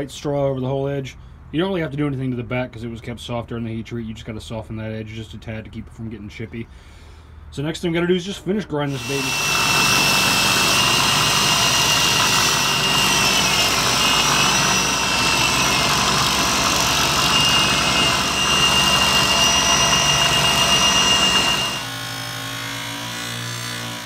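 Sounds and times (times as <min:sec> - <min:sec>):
belt grinder grinding steel: 0:08.9 - 0:23.0
buffing wheel motor hum: 0:09.0 - 0:21.9.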